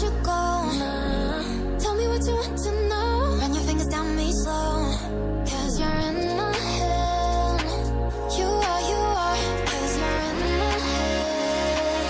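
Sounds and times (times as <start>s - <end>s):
pop music with gliding melody: 0.0s - 12.0s.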